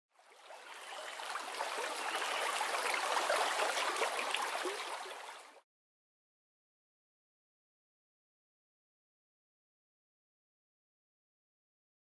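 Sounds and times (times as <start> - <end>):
stream water gurgling: 0.2 - 5.6.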